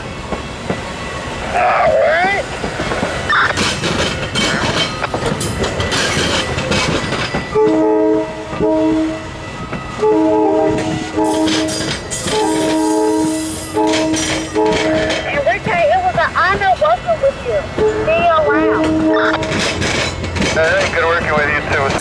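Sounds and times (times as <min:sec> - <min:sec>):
train wheels rumbling and clicking: 0:00.0 - 0:22.0
train air horn blasts: 0:07.5 - 0:09.4, 0:10.0 - 0:15.3, 0:17.8 - 0:19.5.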